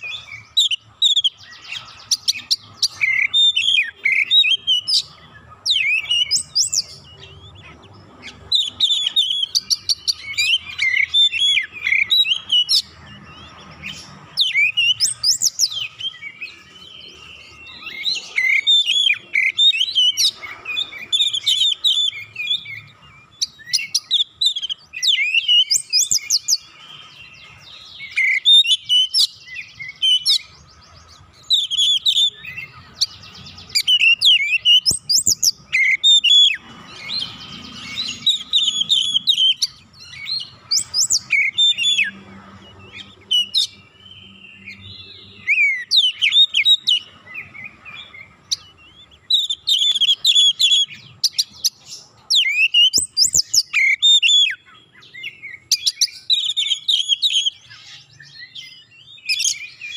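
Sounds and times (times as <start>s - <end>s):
bird singing varied whistles: 0.0s - 7.4s, 8.5s - 30.7s, 31.4s - 42.2s, 42.9s - 59.9s.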